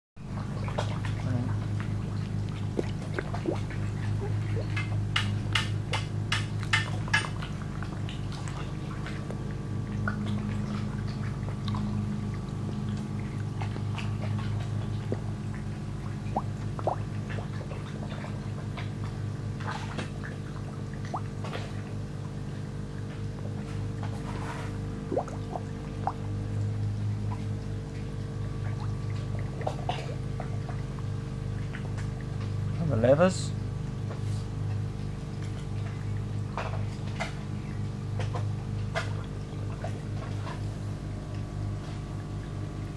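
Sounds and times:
fish slurping at water surface: 0.2s - 5.1s, 6.4s - 32.4s
small splashes: 0.2s - 32.8s, 34.0s - 42.9s
steady low hum: 0.2s - 42.9s.

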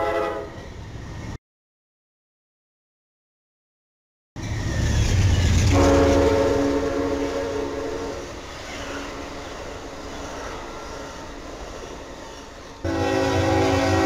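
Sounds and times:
locomotive horn: 0.0s - 0.6s, 5.7s - 8.4s, 12.8s - 14.0s
train rumbling past: 0.0s - 1.4s, 4.4s - 14.0s.

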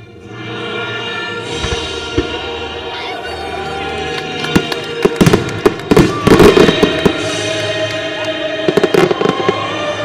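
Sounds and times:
fireworks cracking and popping: 4.1s - 9.7s.

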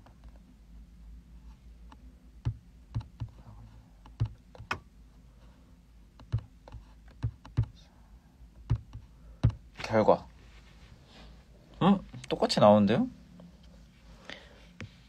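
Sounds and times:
faint low hum: 0.0s - 15.0s
fingers tapping a device: 2.4s - 3.4s, 4.1s - 4.8s, 6.2s - 7.8s, 8.6s - 9.7s.

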